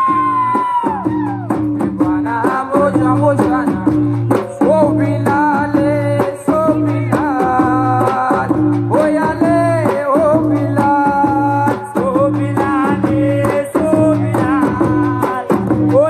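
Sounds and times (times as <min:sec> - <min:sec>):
amplified folk music: 0:00.0 - 0:16.0
drum strokes: 0:00.0 - 0:16.0.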